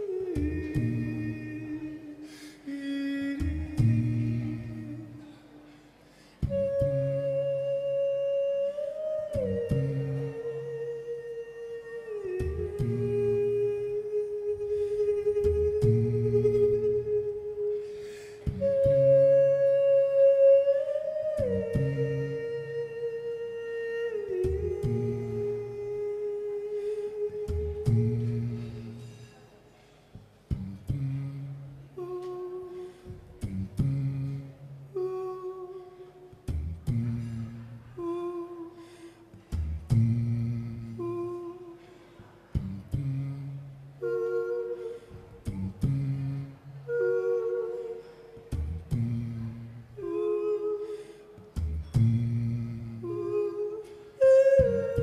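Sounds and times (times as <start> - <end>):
man humming bass line: 0.0 - 5.4, 6.4 - 17.8, 18.4 - 29.1, 30.5 - 38.8, 39.4 - 41.8, 42.5 - 47.8, 48.4 - 55.0
man singing held notes: 0.0 - 6.9.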